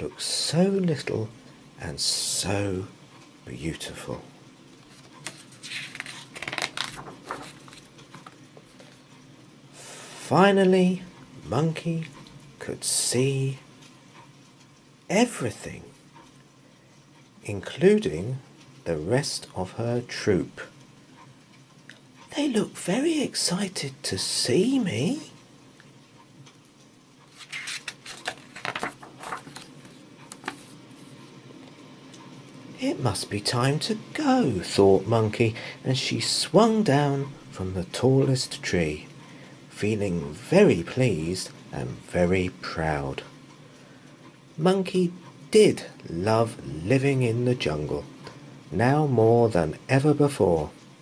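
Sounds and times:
book page turning: 4.8 - 9.0, 27.3 - 31.1
paper rubbing and ticks: 4.8 - 9.0, 27.2 - 31.2.

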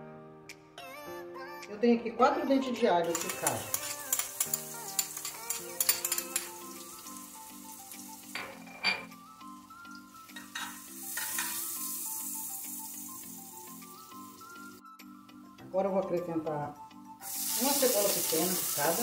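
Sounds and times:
soft background music: 0.0 - 19.0
spoon clicking against a saucer: 3.1 - 6.5
garlic sizzling in hot oil: 3.1 - 14.8, 17.2 - 19.0.

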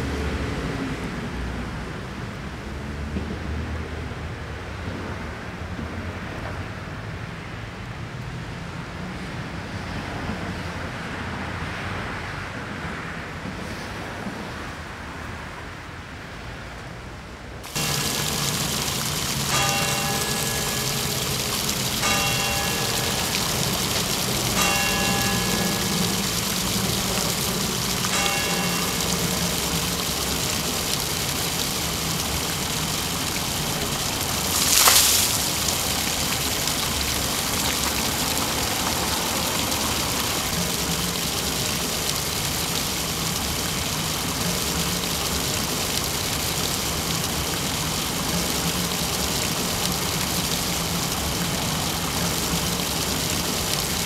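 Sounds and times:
fountain water splashing: 17.6 - 54.0
bell striking: 17.8 - 30.7.

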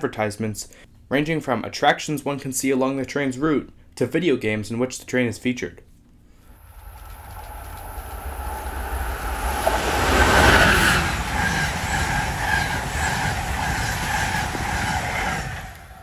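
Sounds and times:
train rushing past: 6.5 - 16.0
train wheel clicks: 6.6 - 16.0.

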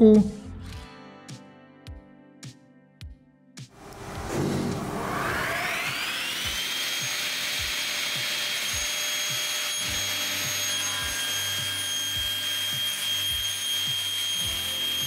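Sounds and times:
table saw cutting wood: 3.8 - 15.0.

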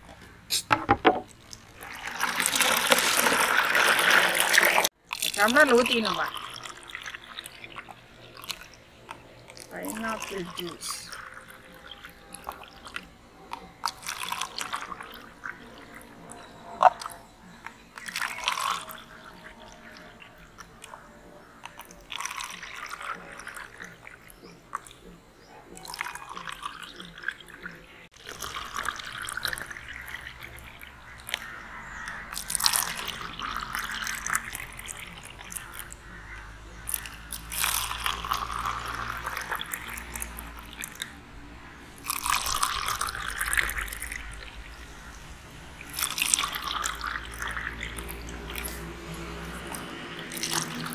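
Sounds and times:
juice pouring into plastic cups: 1.3 - 25.0, 25.8 - 41.2, 41.9 - 50.9.

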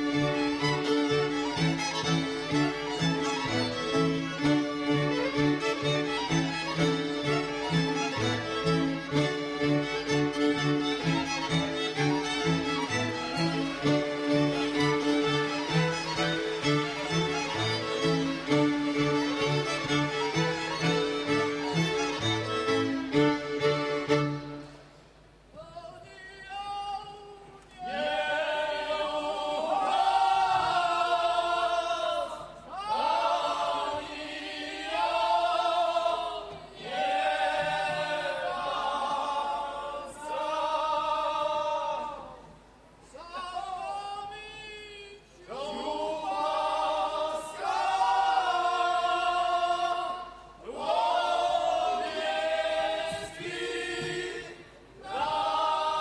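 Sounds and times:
fiddle playing: 0.0 - 24.8
men's group singing unaccompanied: 27.8 - 42.4, 45.6 - 56.0.

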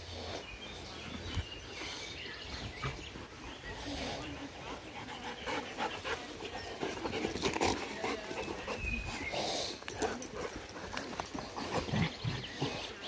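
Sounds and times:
dogs panting: 0.0 - 13.0.

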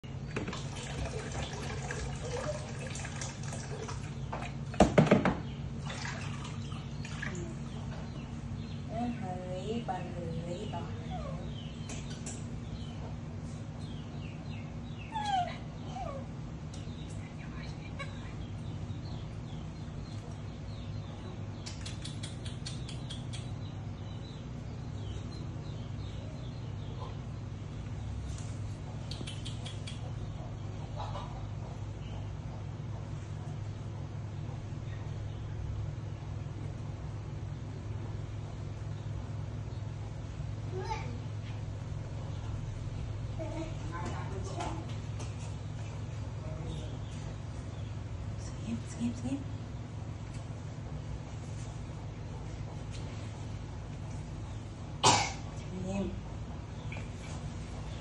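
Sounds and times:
water pouring into bathtub: 0.5 - 4.2, 5.8 - 7.4
small animal chirping: 21.5 - 23.8, 29.0 - 30.5.

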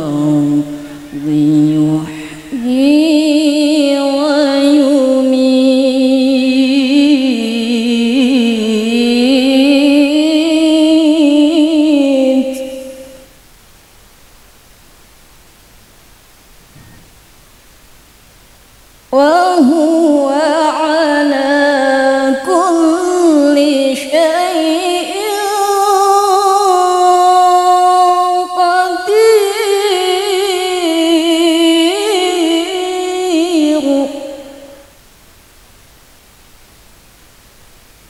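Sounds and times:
woman chanting through microphone: 0.0 - 13.3, 19.2 - 34.9.

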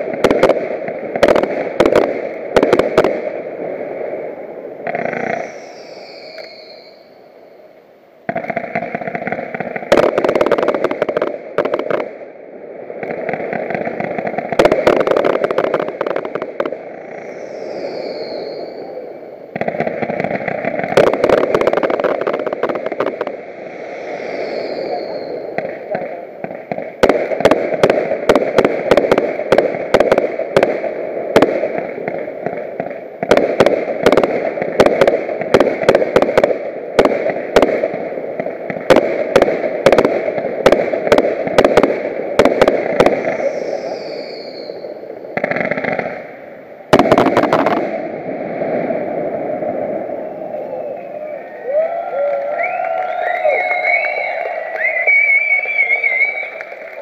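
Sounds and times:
steady rushing noise: 0.0 - 44.0, 44.7 - 51.5
falling firework whistles: 5.0 - 7.6, 16.5 - 19.4, 20.4 - 25.9, 41.1 - 46.3, 48.7 - 57.0
firework shells bursting: 13.0 - 48.1.

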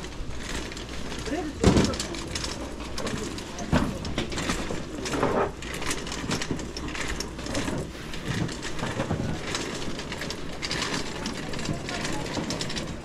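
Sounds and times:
small clatters and knocks: 0.0 - 13.0
footsteps: 7.5 - 10.2.

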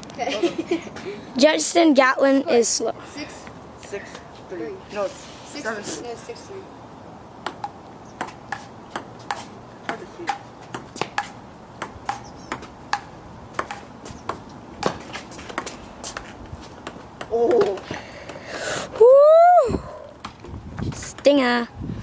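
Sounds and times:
ping-pong ball clicking off paddles: 7.4 - 18.5.

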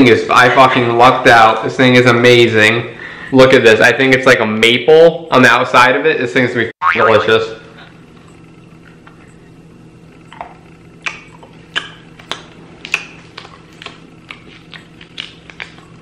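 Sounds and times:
person chewing candy: 10.3 - 16.0.

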